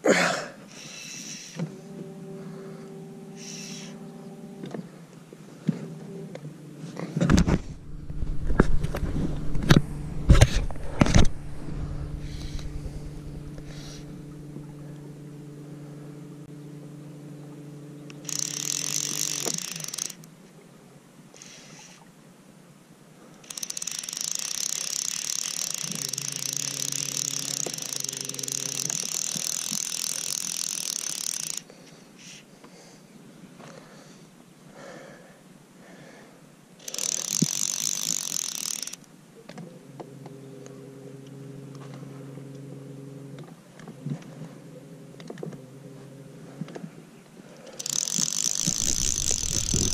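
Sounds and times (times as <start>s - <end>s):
fishing reel drag buzzing: 0.7s - 1.8s, 2.4s - 4.6s, 6.6s - 20.3s, 21.3s - 22.1s, 23.4s - 32.4s, 36.8s - 39.1s, 47.6s - 49.9s
electric boat motor humming: 0.7s - 22.1s, 23.4s - 31.8s, 36.8s - 49.9s.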